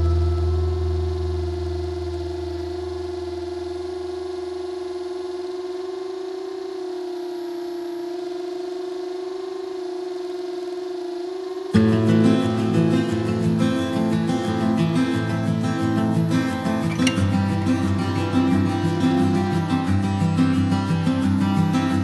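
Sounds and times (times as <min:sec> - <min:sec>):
held music note: 0:00.0 - 0:05.2
low bass note: 0:00.0 - 0:05.6.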